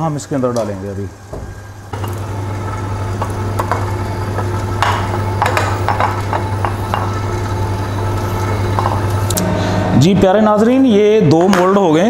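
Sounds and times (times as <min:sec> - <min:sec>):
stand mixer motor hum: 0:01.6 - 0:09.6
beater knocking in steel bowl: 0:04.8 - 0:07.3.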